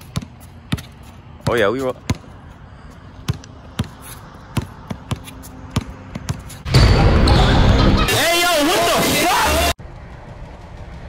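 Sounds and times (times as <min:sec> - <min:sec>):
basketball bouncing on hard court: 0:00.0 - 0:02.4, 0:03.2 - 0:06.6.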